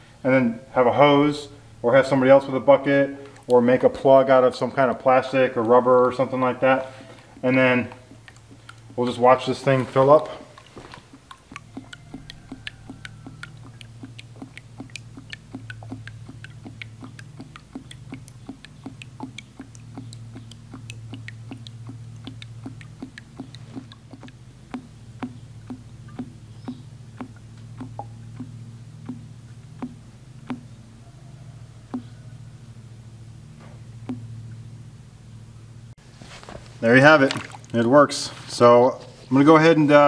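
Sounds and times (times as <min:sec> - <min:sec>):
steady low hum: 0:00.0 - 0:40.0
air glugging clicks: 0:03.2 - 0:31.0.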